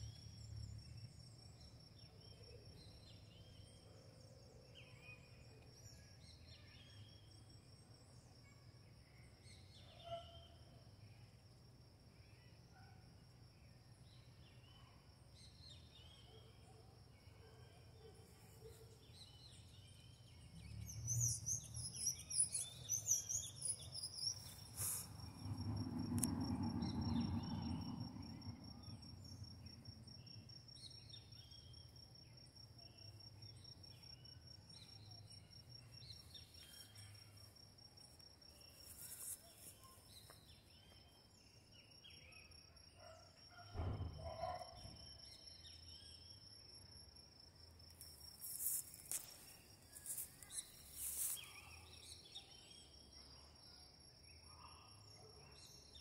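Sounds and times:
bird chirping: 17.2 - 25.4
brief knock: 43.7 - 44.5
high insect trill: 46.4 - 52.6.

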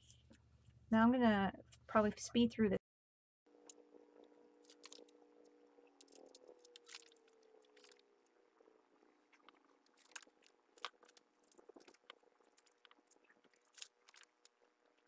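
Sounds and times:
faint steady hum: 3.5 - 15.0
plastic cord crinkling and rustling: 4.6 - 5.2, 9.4 - 15.0.

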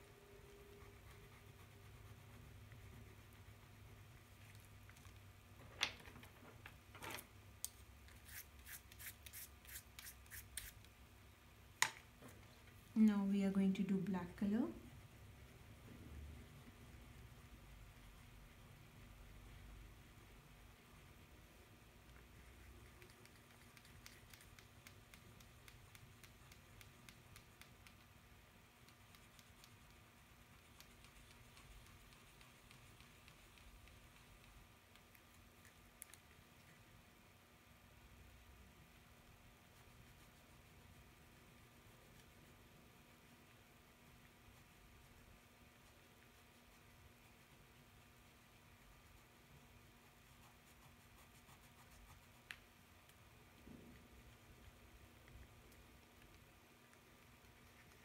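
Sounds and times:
brush scraping on paper: 8.1 - 10.9.

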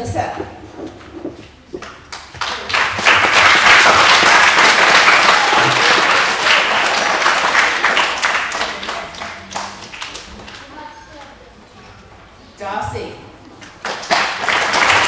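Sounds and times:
children applauding: 2.1 - 10.7, 13.8 - 15.0.

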